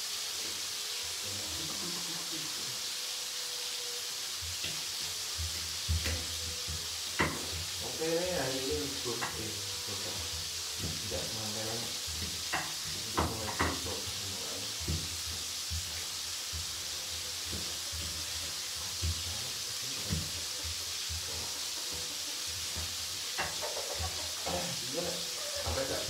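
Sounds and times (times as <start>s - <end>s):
oil sizzling: 0.0s - 26.0s
pestle grinding in mortar: 11.9s - 24.6s.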